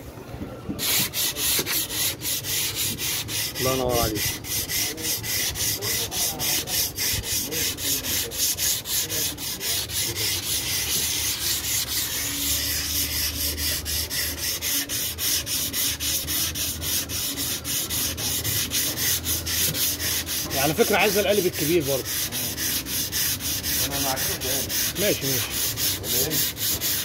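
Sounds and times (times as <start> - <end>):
sandpaper scratching on filler: 0.8 - 27.0.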